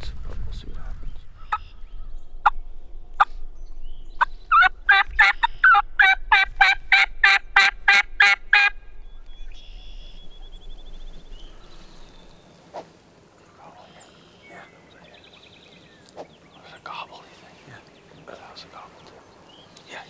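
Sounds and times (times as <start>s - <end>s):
turkey yelping: 4.5s - 8.8s.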